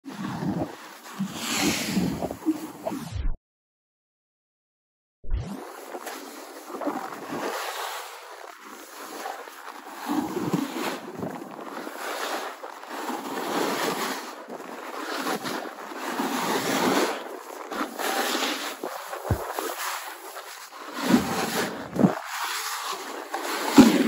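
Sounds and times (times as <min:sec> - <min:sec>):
skis scraping over snow: 0:00.1 - 0:02.9, 0:05.7 - 0:24.0
wind on microphone: 0:17.9 - 0:22.3.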